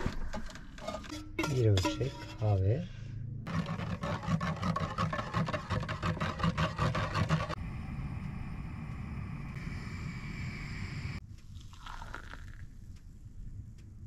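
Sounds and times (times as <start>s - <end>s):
spoon stirring in metal pot: 0.8s - 2.6s, 3.5s - 7.6s
gas burner hiss: 7.6s - 11.2s.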